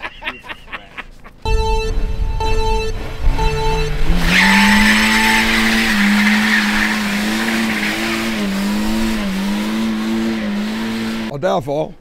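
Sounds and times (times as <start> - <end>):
car engine revving hard: 2.8 - 11.3.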